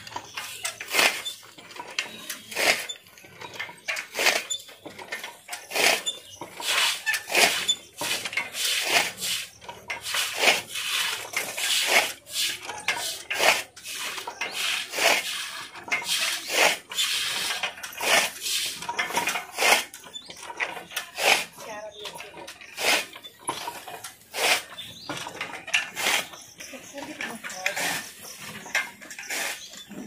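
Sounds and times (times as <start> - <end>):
broom sweeping wet floor: 6.6 - 17.4, 24.3 - 24.7.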